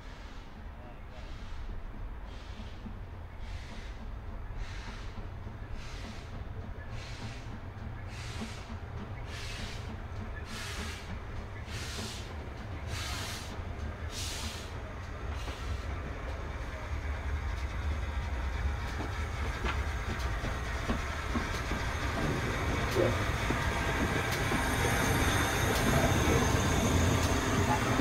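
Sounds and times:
train low rumble: 0.0 - 28.0
wheels clicking over rail joints: 17.0 - 28.0.

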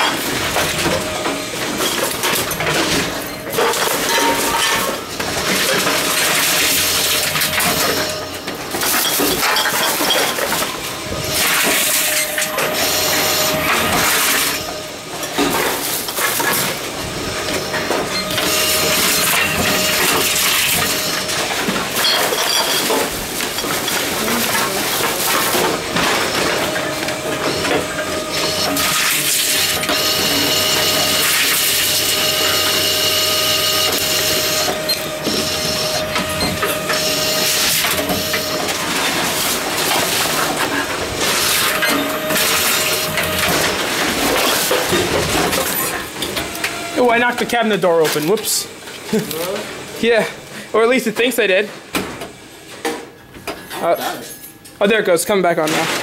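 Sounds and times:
plastic bottles clattering and crunching: 0.0 - 14.6, 17.6 - 46.2
steady machine whine: 0.0 - 47.9
machine mechanism running: 0.0 - 49.6.

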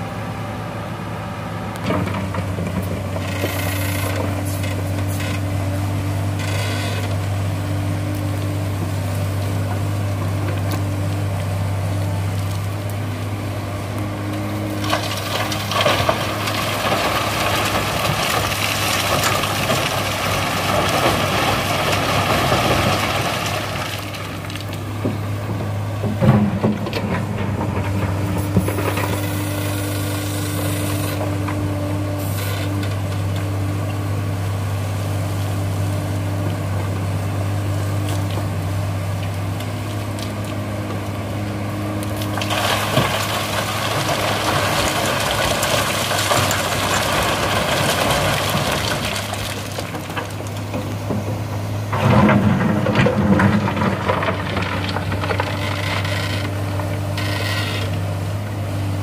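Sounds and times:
diesel engine hum: 0.0 - 59.0
sand and stones pouring into truck: 14.4 - 24.9, 41.8 - 57.9.

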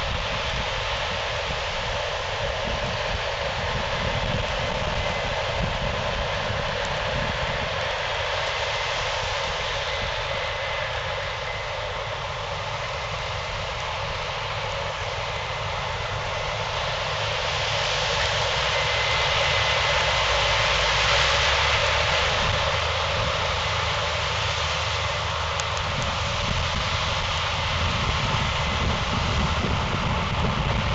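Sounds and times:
diesel engine and machinery noise: 0.0 - 30.9
faint high whine: 0.0 - 30.9.

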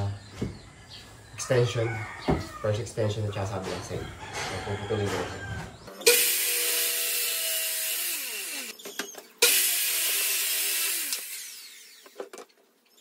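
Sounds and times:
circular saw cutting boards: 5.9 - 13.0.

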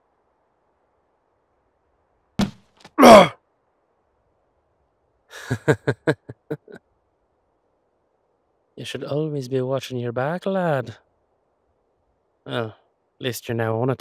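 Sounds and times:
blunt thunk of a blow: 2.4 - 2.6
man's short pained cry: 3.0 - 3.4.

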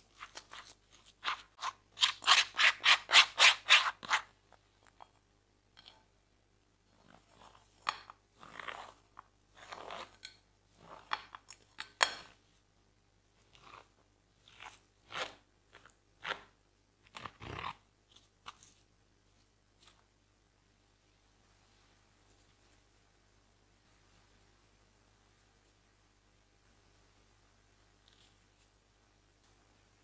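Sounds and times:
spoon scraping metal sieve: 0.1 - 4.3, 7.0 - 12.4.

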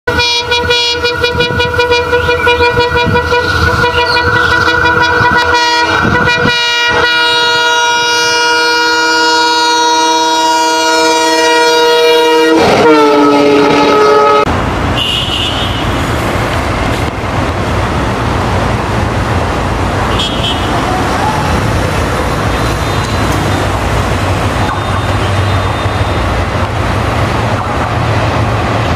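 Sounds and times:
locomotive horn blast: 0.1 - 16.1, 20.1 - 20.9
train rumble: 0.1 - 28.9.

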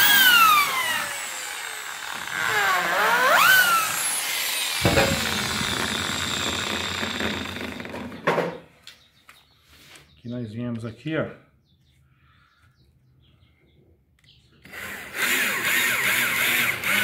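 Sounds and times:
electric drill boring into wood: 0.0 - 8.4, 14.6 - 17.0.

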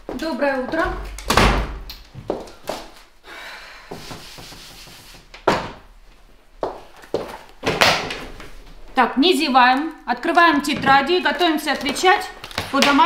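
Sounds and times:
footsteps: 0.0 - 1.2, 2.0 - 3.1, 3.9 - 9.1.

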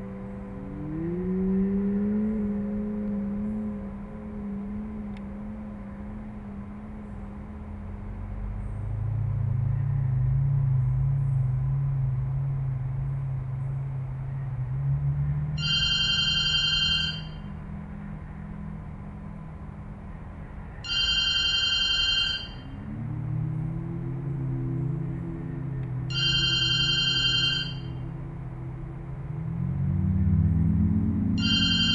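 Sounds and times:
low wavering hum: 0.0 - 31.9
electronic telephone ring: 15.6 - 17.4, 20.8 - 22.7, 26.1 - 27.9, 31.4 - 31.9.

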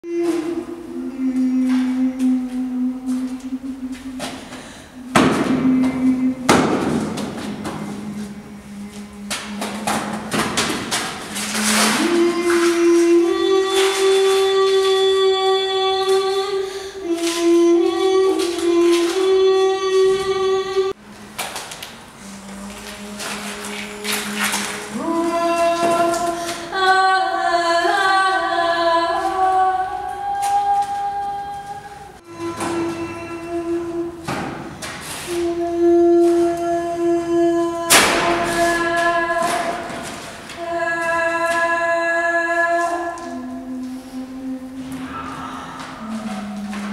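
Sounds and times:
heavy reverberant thuds: 4.1 - 8.6, 9.3 - 16.5, 34.1 - 35.2, 37.8 - 41.8.

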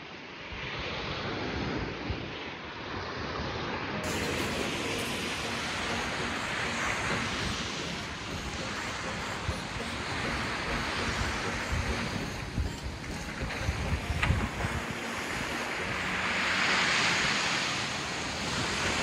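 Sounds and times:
sea waves washing onto beach: 0.4 - 19.0
wind buffeting microphone: 6.2 - 16.4.

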